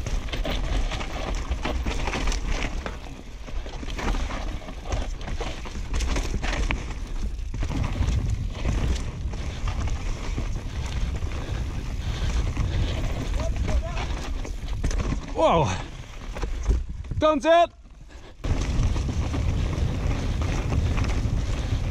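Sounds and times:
bike clattering over bumps: 0.0 - 17.2, 18.4 - 21.9
tyres on dirt: 0.0 - 21.9
wind buffeting microphone: 7.5 - 15.0, 18.4 - 21.9.

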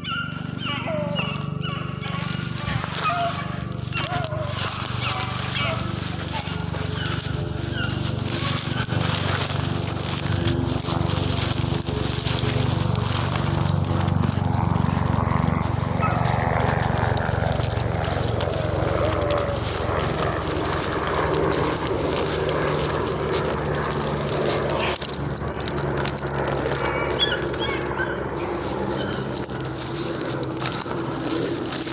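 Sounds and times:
steady low hum: 0.0 - 31.9
twigs crackling and rustling: 0.6 - 31.9.

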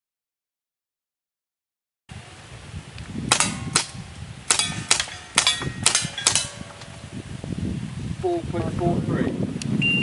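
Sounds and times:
handgun shots hitting steel plates: 3.3 - 6.9.

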